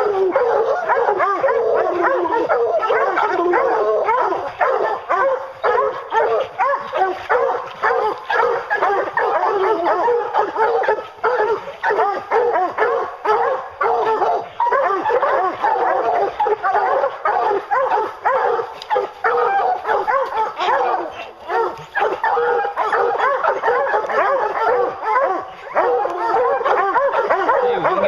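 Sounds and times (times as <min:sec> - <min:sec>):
hounds baying and barking: 0:00.0 - 0:28.0.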